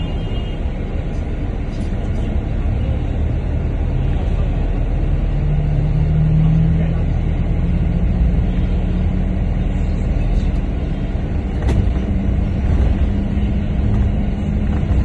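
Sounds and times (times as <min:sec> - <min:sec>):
bus engine and road rumble: 0:00.0 - 0:15.0
constant hum: 0:06.5 - 0:15.0.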